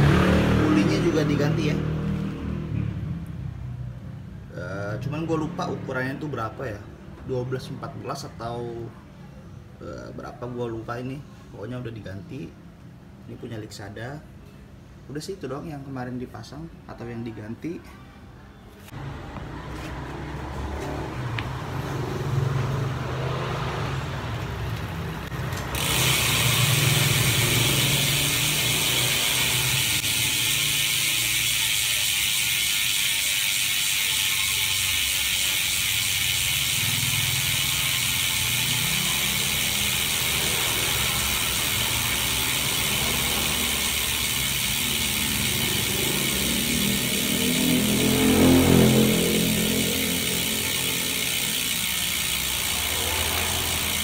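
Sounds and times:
bicycle freehub clicking buzz: 24.3 - 54.0
low mechanical rumbling: 24.8 - 54.0.

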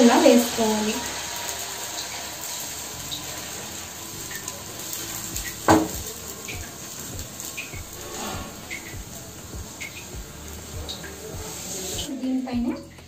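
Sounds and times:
batter sizzling on a hot pan: 0.0 - 13.0.

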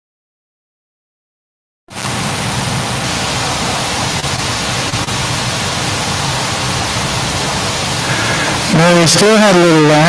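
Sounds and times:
loud steady static hiss: 1.9 - 10.0.

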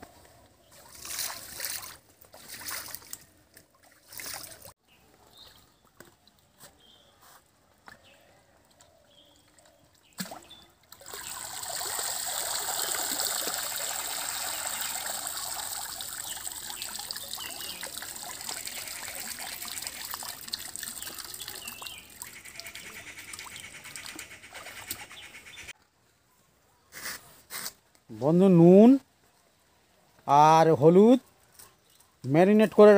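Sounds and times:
water pouring and splashing: 0.7 - 4.8, 10.0 - 22.8.

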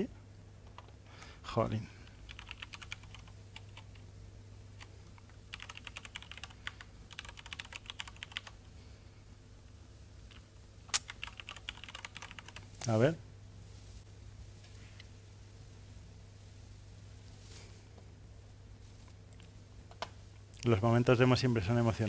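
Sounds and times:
steady low hum: 0.0 - 22.0
laptop keyboard typing: 0.6 - 1.0, 2.0 - 4.0, 4.8 - 8.6, 10.3 - 12.7.

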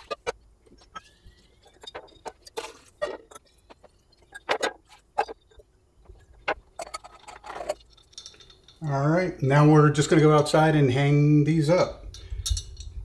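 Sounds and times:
glass feeder clinking: 0.9 - 9.1.

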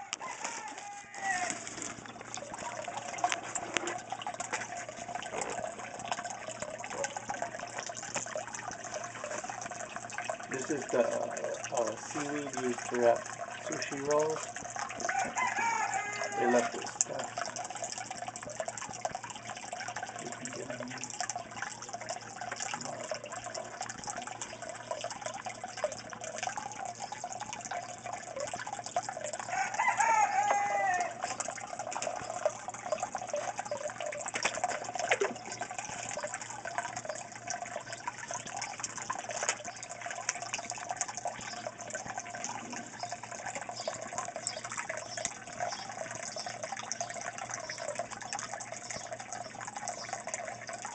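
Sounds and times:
wavering animal calls: 0.0 - 1.8, 29.4 - 31.4
water splashing into tank: 0.0 - 50.9.

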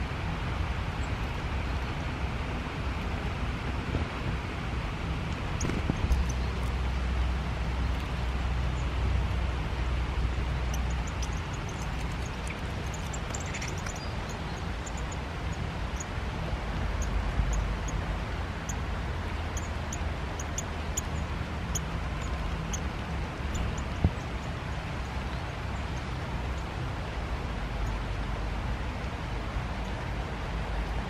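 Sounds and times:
low rumble on microphone: 2.6 - 14.8.

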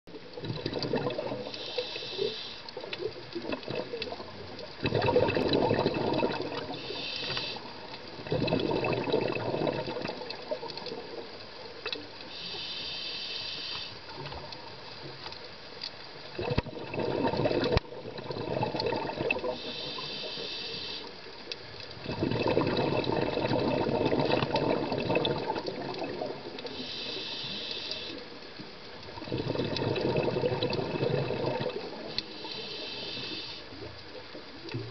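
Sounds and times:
exhaled bubbles rushing: 0.2 - 1.6, 3.0 - 7.0, 8.1 - 11.3, 16.3 - 20.0, 22.0 - 26.8, 29.1 - 32.2
diver breathing through regulator: 1.4 - 2.8, 6.6 - 7.8, 12.3 - 14.0, 19.4 - 21.2, 26.6 - 28.2, 31.0 - 33.8.

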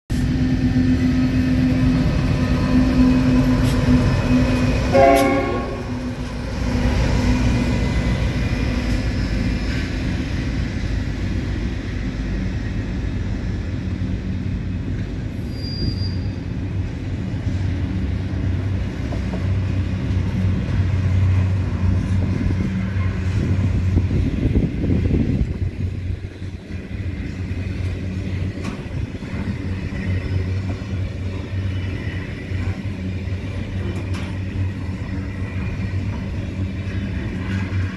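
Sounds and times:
train wheels rumbling on rail: 0.1 - 37.9
train horn blast: 3.6 - 6.1.

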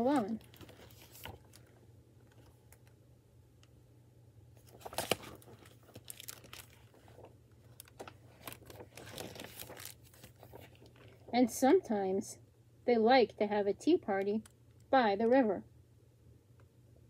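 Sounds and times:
book pages turning: 0.0 - 2.9, 4.6 - 11.4
low steady hum: 0.0 - 17.0.

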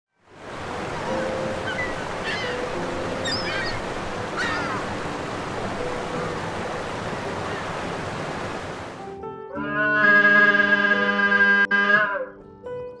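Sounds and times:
rushing water: 0.2 - 9.1
chirping animal calls: 1.2 - 5.0.

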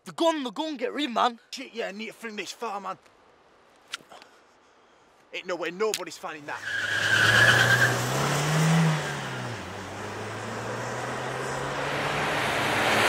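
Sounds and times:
road noise: 2.4 - 13.0
car engine revving: 6.6 - 13.0.

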